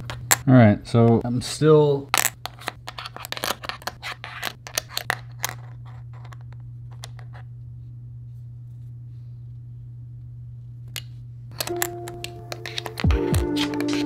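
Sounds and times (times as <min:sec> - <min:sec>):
puzzle pieces clicking: 0:02.1 - 0:06.4, 0:11.5 - 0:14.0
steady low hum: 0:03.9 - 0:13.6.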